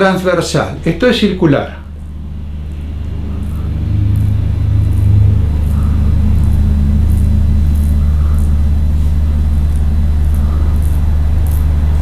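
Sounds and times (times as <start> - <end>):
steady low hum: 0.0 - 12.0
fingertips rubbing skin: 2.7 - 12.0.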